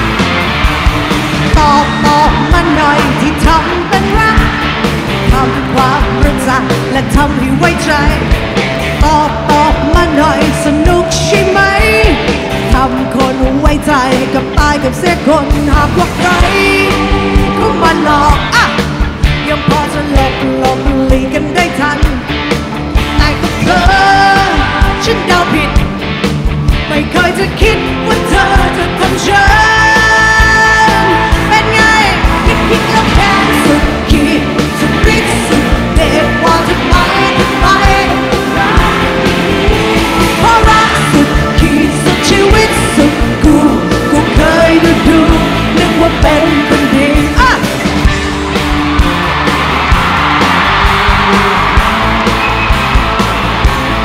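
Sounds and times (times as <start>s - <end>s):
drums: 0.0s - 54.0s
electric guitar: 0.0s - 54.0s
rock band playing: 0.0s - 54.0s
woman singing into microphone: 1.5s - 4.6s, 5.2s - 8.4s, 9.0s - 22.2s, 23.2s - 25.8s, 26.9s - 47.7s
drums striking: 31.2s - 54.0s.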